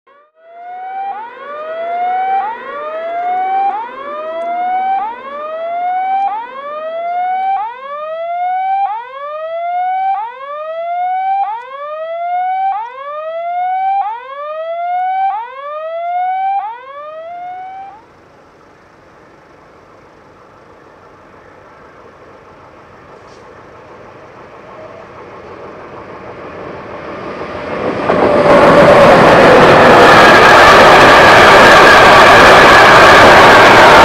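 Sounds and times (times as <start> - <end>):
rising electronic warning tone: 0.1 - 18.2, 28.1 - 34.0.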